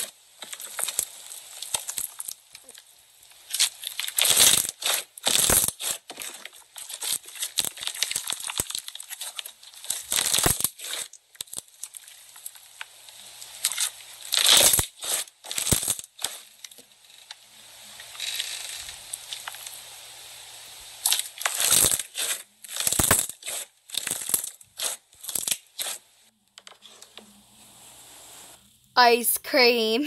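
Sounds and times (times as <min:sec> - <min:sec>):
crunchy slime crackling: 0:00.0 - 0:16.8, 0:21.0 - 0:26.0.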